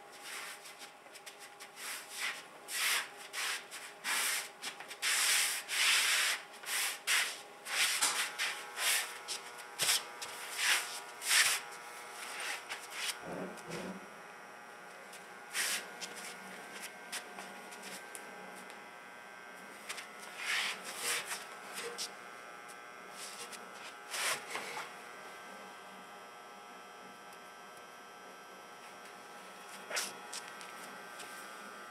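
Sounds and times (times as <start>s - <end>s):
electrical hum: 0.0s - 31.9s
feet scuffing on gritty floor: 0.1s - 13.2s, 15.5s - 18.2s, 29.7s - 31.5s.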